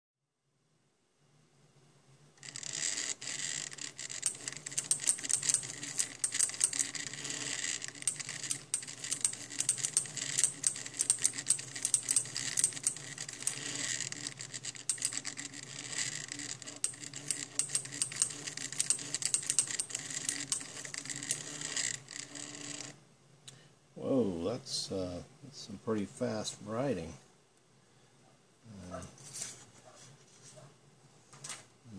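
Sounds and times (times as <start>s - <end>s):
mechanism clicking and ticking: 2.4s - 23.0s.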